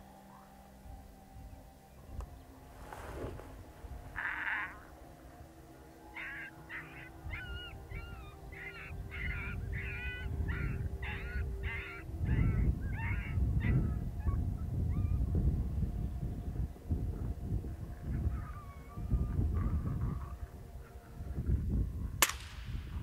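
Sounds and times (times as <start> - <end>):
wind rumble on microphone: 0.8 - 5.6, 7.1 - 23.0
coyote yipping: 4.1 - 4.9, 6.2 - 15.2, 18.0 - 20.5.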